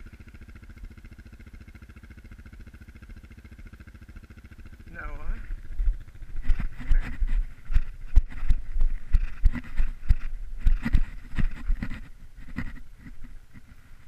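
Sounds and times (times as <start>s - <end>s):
camera knocks and rubbing: 6.4s - 13.8s.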